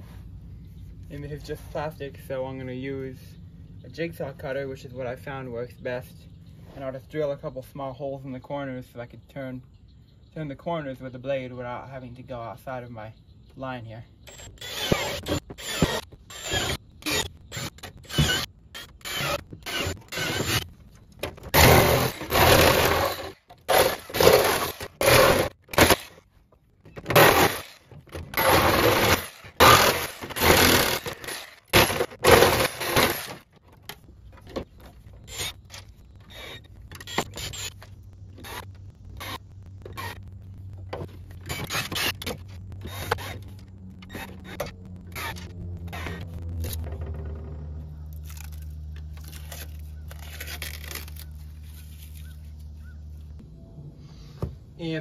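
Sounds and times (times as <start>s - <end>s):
cordless drill boring holes: 14.3s - 20.7s, 21.5s - 26.2s, 27.1s - 33.4s, 35.2s - 40.2s, 41.4s - 46.2s
drill driving screws: 14.3s - 20.7s, 21.5s - 26.2s, 27.1s - 33.4s, 35.2s - 40.2s, 41.4s - 46.8s
jigsaw cutting plastic: 14.3s - 20.7s, 21.4s - 26.2s, 27.0s - 33.5s, 35.2s - 40.2s, 41.4s - 46.8s, 48.2s - 52.3s.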